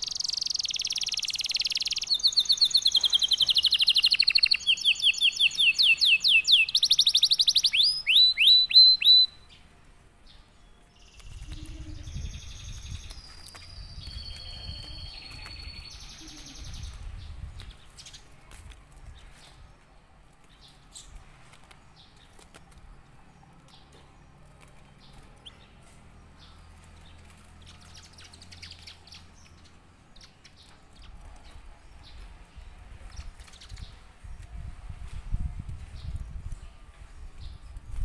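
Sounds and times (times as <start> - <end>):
canary trill: 0.0 - 9.6, 11.0 - 17.0
canary chirping: 0.0 - 9.7, 10.3 - 17.2.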